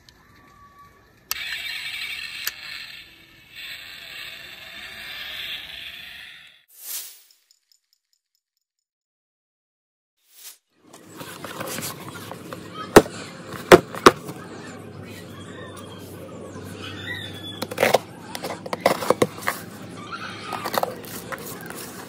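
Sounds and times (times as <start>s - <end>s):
packaging rustling: 11.0s - 14.4s, 17.6s - 19.8s, 20.5s - 22.0s
toy box clicking: 11.1s - 14.4s, 17.6s - 19.7s, 20.4s - 22.0s.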